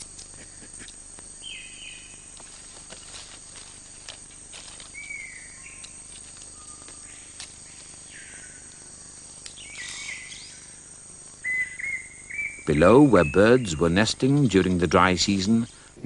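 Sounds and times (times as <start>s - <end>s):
high-pitched insect drone: 0.0s - 16.0s
whistled bird calls: 5.0s - 5.9s, 9.6s - 10.6s, 11.4s - 13.9s.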